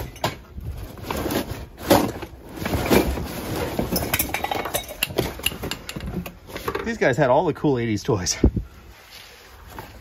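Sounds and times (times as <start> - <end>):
boxes knocking together: 0.0 - 6.3
cardboard boxes rustling and scraping: 0.0 - 6.8, 8.8 - 10.0.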